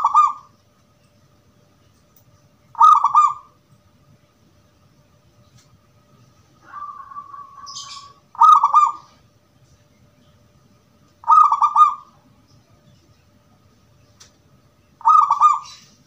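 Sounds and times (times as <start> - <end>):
dove cooing: 0.0 - 0.5, 2.8 - 3.6, 6.6 - 9.2, 11.2 - 12.2, 15.0 - 16.0.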